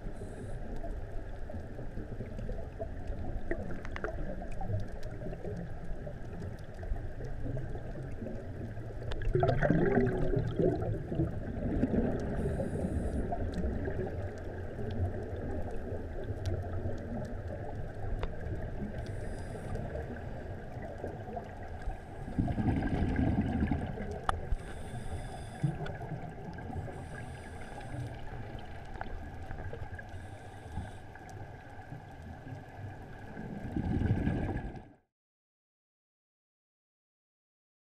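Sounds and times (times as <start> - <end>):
gurgling exhaled bubbles: 0.0 - 30.3, 32.5 - 35.0
regulator breathing hiss: 12.3 - 13.4, 19.1 - 20.1, 24.5 - 26.0, 26.8 - 28.3, 30.1 - 31.2.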